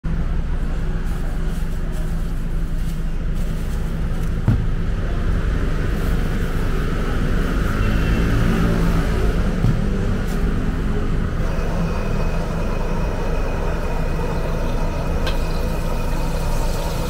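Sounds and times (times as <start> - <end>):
gas burner rumbling: 0.4 - 17.0
knock: 4.4 - 4.7.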